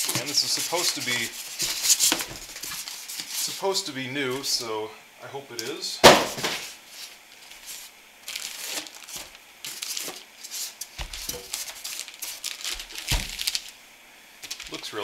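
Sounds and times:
plastic wrapping crinkling: 0.0s - 3.7s, 6.2s - 13.8s, 14.4s - 15.0s.

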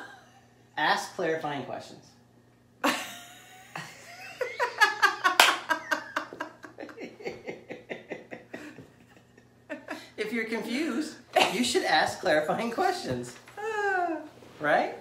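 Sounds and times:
woman laughing: 2.8s - 10.2s.

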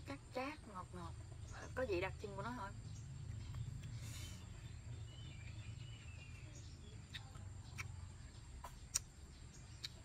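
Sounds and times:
faint bird chirping: 0.0s - 10.0s
wet chewing mouth clicks: 7.0s - 10.0s.

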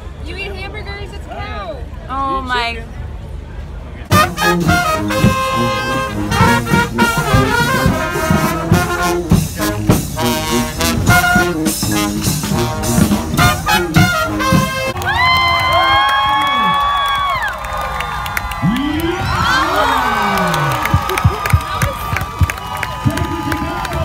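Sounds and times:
brass band playing: 4.1s - 15.0s
trumpets: 4.1s - 15.1s.

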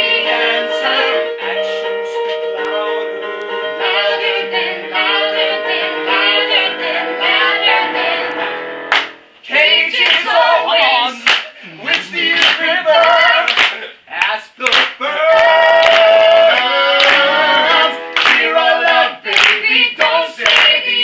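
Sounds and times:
musical accompaniment: 0.0s - 13.5s, 15.3s - 21.0s
people singing together: 0.0s - 21.0s
hand claps: 8.9s - 9.2s, 10.0s - 10.3s, 11.2s - 17.3s, 18.1s - 18.5s, 19.3s - 20.8s.

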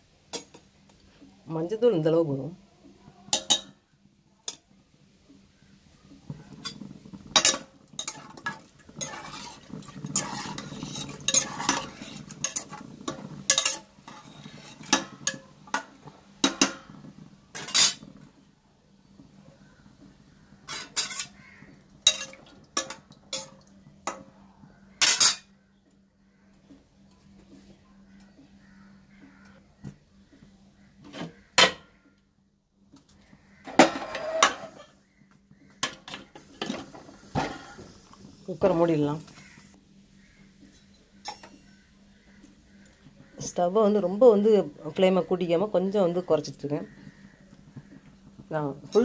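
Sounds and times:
metal spoon clinking and scraping pot: 3.3s - 3.8s, 6.4s - 18.2s, 20.7s - 21.4s, 22.0s - 24.2s, 25.0s - 25.5s, 33.7s - 35.0s, 40.7s - 41.8s.

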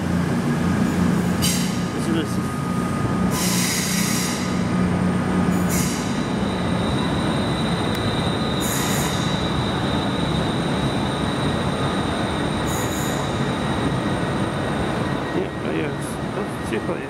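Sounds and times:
train diesel engines droning: 0.0s - 17.0s
high-pitched wheel squeal: 3.3s - 4.6s, 5.5s - 14.0s.

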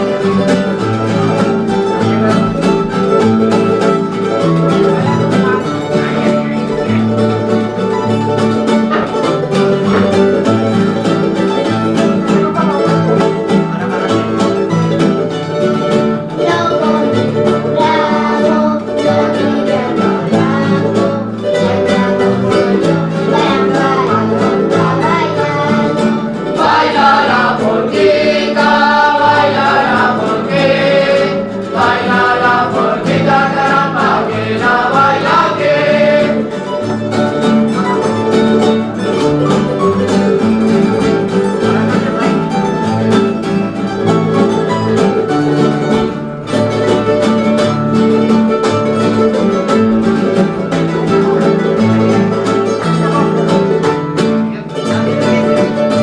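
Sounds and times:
strummed guitars: 0.0s - 56.0s
voices singing: 16.3s - 37.2s.

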